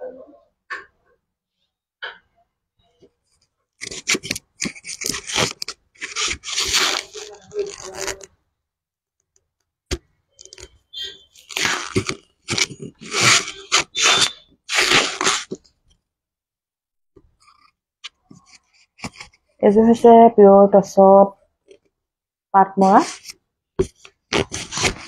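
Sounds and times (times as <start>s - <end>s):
crinkling and rustling: 3.1s - 8.4s, 9.9s - 16.0s, 17.2s - 19.5s, 22.8s - 25.0s.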